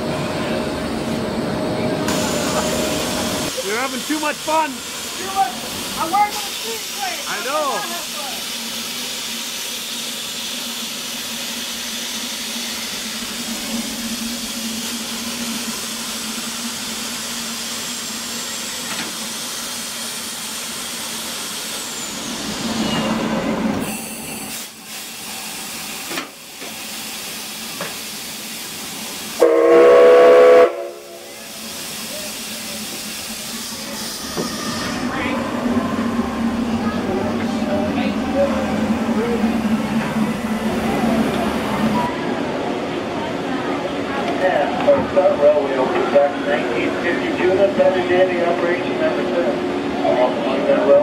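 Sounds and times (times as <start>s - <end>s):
steam locomotive hissing: 2.0s - 42.2s
loud steam whistle blast: 29.4s - 31.5s.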